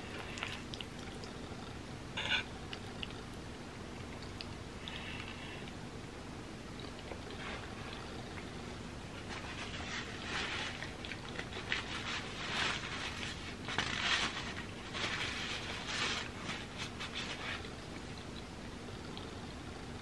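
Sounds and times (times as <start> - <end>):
close chewing and mouth smacking: 0.1 - 1.8, 2.6 - 5.8, 6.7 - 8.6, 9.6 - 12.0, 16.2 - 19.6.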